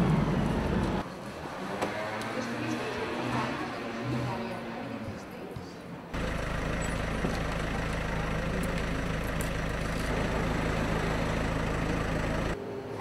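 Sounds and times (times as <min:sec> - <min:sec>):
low engine hum: 0:06.2 - 0:12.6.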